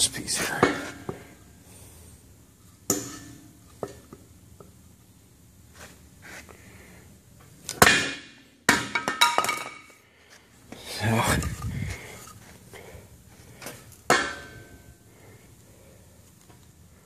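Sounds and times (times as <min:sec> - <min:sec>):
sharp knocks with metallic ring: 0:02.9 - 0:04.0, 0:07.8 - 0:09.8, 0:14.1 - 0:14.7
maul striking wood: 0:07.8 - 0:09.3.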